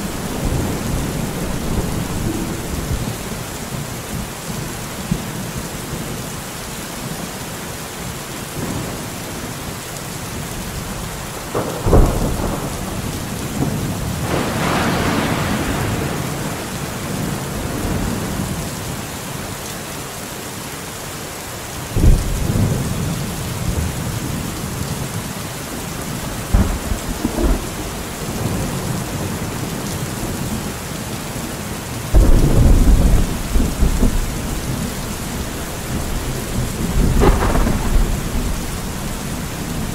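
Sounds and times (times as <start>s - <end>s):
thunderclaps and rolling rumbles: 0.0s - 6.2s, 10.2s - 19.0s, 22.0s - 30.8s, 32.1s - 39.9s
heavy rain: 0.0s - 39.9s.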